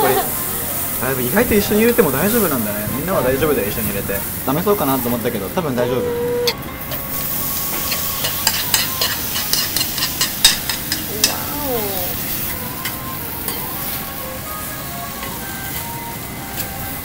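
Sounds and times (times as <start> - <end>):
batter sizzling on a hot griddle: 0.0 - 5.8, 6.5 - 17.0
metal spoon scraping a bowl: 7.8 - 11.1.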